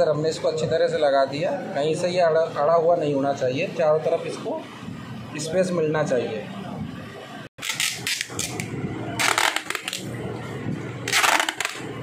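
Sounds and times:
packing tape ripping off roll: 7.6 - 10.0, 11.1 - 11.9.

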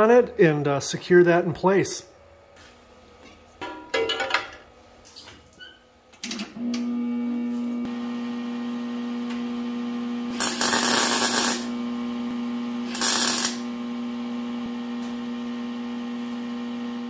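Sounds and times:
welder humming: 6.6 - 17.0
welding arc crackle: 10.3 - 11.8, 12.8 - 13.7.

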